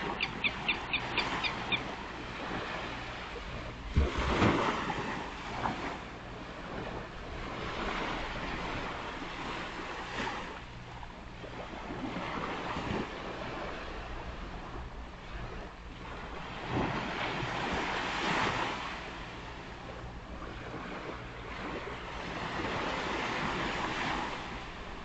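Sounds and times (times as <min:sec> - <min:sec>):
wind buffeting microphone: 0:00.0 - 0:18.8.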